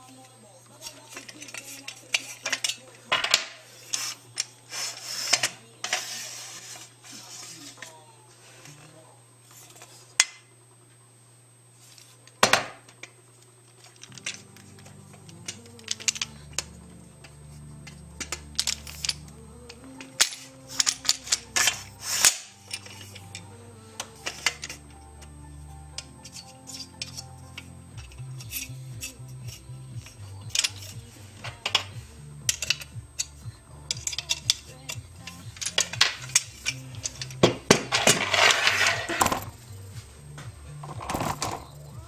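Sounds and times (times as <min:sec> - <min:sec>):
background music with low notes: 0:00.0 - 0:10.0, 0:10.8 - 0:42.0
metal bike rack clicks and clanks: 0:17.8 - 0:24.9, 0:26.0 - 0:39.5.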